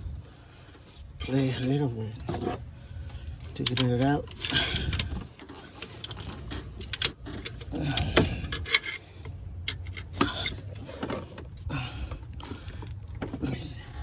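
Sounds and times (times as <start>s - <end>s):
screwdriver scraping engine parts: 3.4s - 11.7s.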